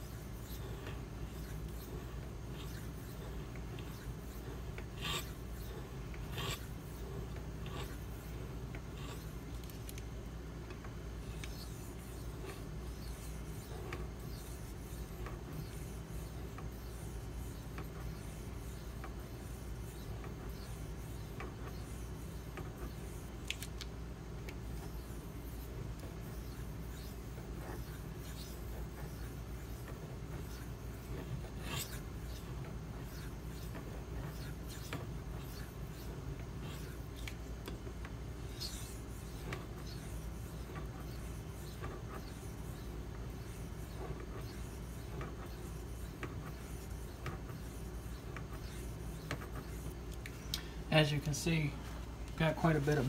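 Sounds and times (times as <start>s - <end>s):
knife rubbing on whetstone: 0.0s - 8.3s, 24.8s - 37.8s, 38.4s - 50.0s.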